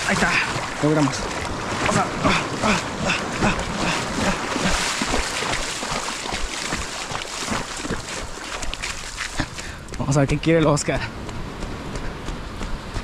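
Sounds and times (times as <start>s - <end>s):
shallow water sloshing: 0.0s - 9.8s
small waves washing on sand: 0.0s - 10.2s.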